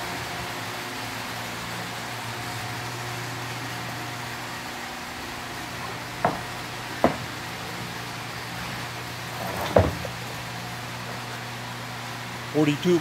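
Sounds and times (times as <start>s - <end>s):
workshop machinery hum: 0.0s - 13.0s
bathtub shell knocking: 6.2s - 7.3s.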